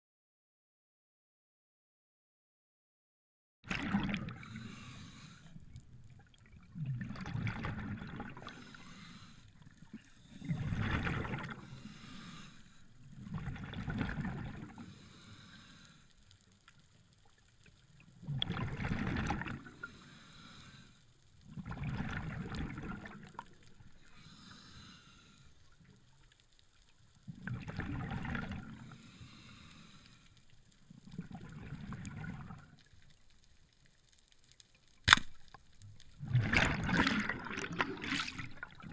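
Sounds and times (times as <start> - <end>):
scuba regulator breathing: 4.3 - 5.9, 8.3 - 10.8, 11.4 - 13.2, 14.7 - 16.4, 19.6 - 21.2, 23.9 - 25.8, 28.7 - 30.6.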